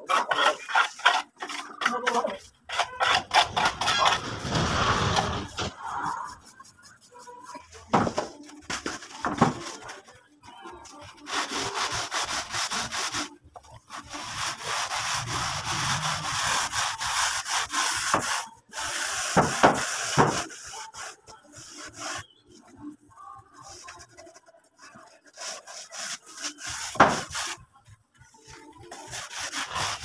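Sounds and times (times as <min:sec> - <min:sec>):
hand tool scraping a cement wall: 0:00.0 - 0:06.7, 0:11.2 - 0:22.3.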